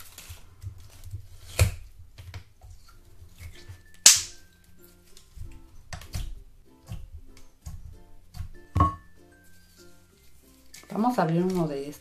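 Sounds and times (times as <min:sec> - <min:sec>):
sticky slime pop: 0:03.5 - 0:04.5.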